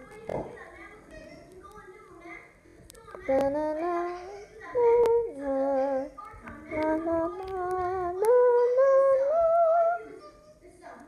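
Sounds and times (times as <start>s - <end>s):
child singing: 3.0s - 10.6s.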